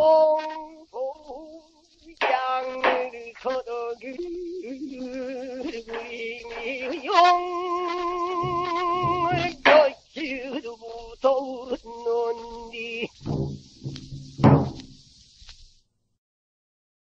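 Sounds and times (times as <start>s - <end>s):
man singing: 0.0s - 13.4s
record hiss: 0.0s - 16.2s
barrel drum strokes: 8.0s - 10.0s, 13.2s - 15.6s.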